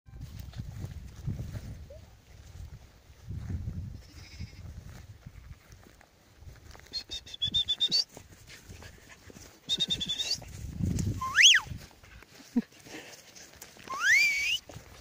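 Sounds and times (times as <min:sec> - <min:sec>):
high-pitched pulsing animal calls: 0:11.2 - 0:11.7, 0:13.9 - 0:14.6.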